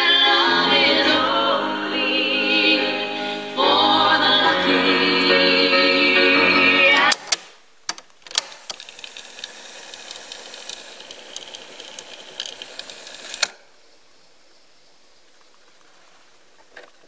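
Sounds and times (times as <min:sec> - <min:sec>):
music playing from tape: 0:00.0 - 0:07.3
tape fast-winding whir: 0:08.6 - 0:13.6.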